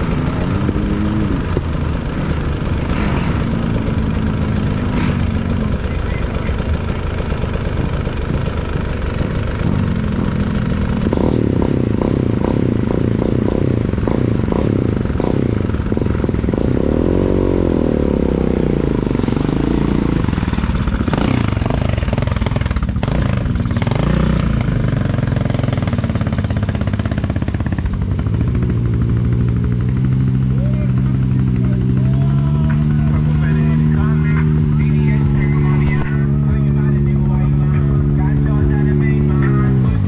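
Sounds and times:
quad bike engines revving: 0.0s - 40.0s.

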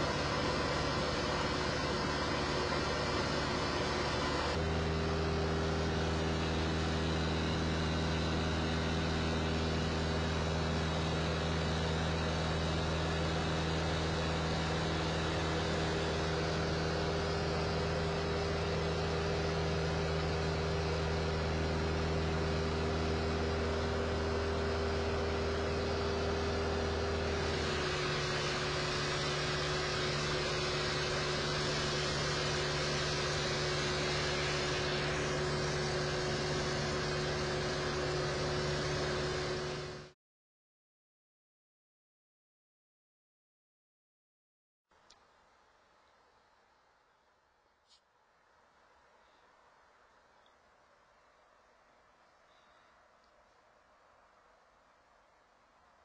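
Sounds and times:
aircraft engine and propeller droning: 0.0s - 40.2s.

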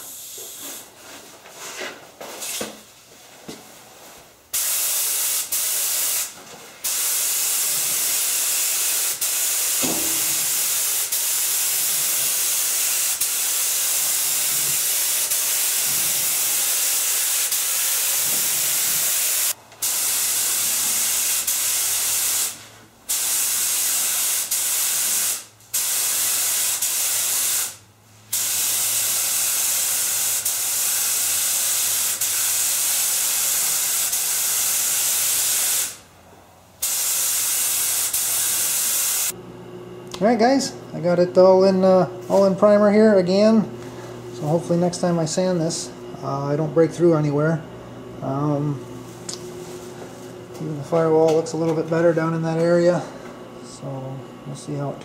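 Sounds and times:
spray gun hissing: 4.6s - 36.0s, 36.8s - 39.3s.

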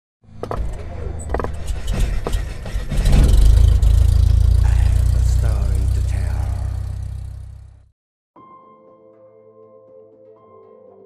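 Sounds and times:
deep loud rumble: 1.0s - 7.9s.

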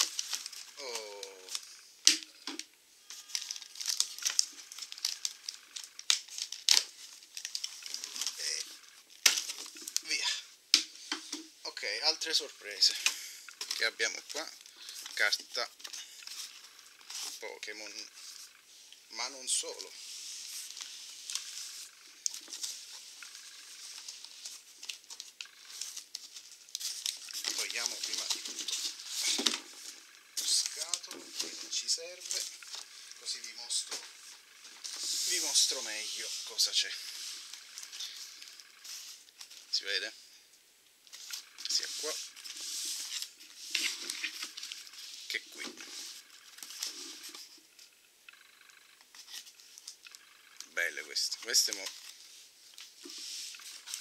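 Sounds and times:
plastic wrap crinkling: 0.0s - 10.4s, 19.5s - 39.9s, 41.1s - 47.6s, 48.4s - 54.0s
cardboard tearing: 3.2s - 8.4s
cardboard rustling and scraping: 19.5s - 39.7s, 41.1s - 47.8s.

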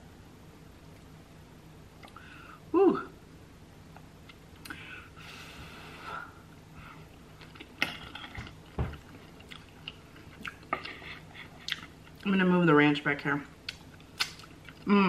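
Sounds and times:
wet chewing of food: 7.4s - 12.3s, 13.6s - 14.9s.

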